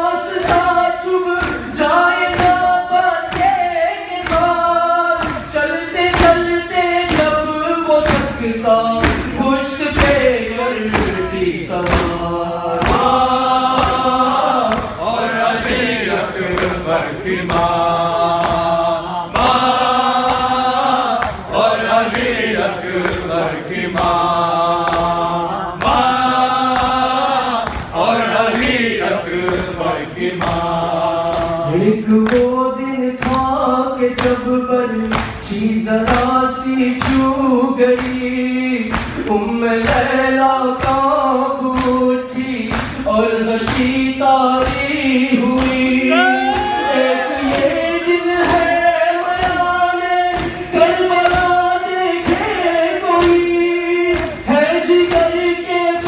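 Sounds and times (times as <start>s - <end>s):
group of men singing: 0.0s - 56.0s
man singing a slow lament: 0.0s - 56.0s
hands slapping on chests: 5.2s - 5.5s, 12.8s - 16.8s, 18.3s - 25.2s, 25.8s - 31.6s, 35.1s - 35.4s, 38.9s - 40.1s, 40.8s - 41.1s, 50.3s - 50.6s.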